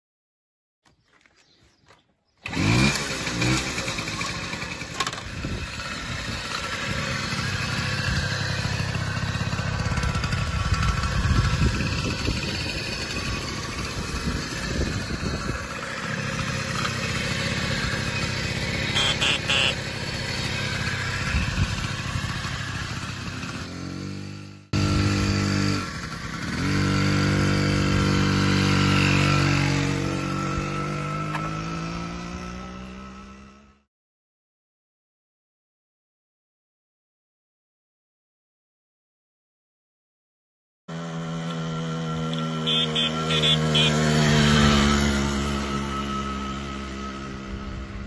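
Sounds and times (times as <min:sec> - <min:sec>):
moped engine running: 0:02.4 - 0:33.6, 0:40.9 - 0:48.0.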